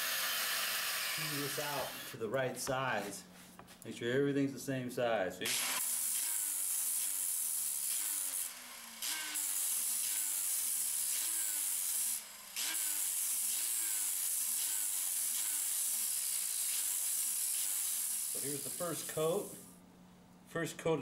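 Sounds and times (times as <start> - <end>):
grinding wheel hissing on rod: 5.9 - 19.7.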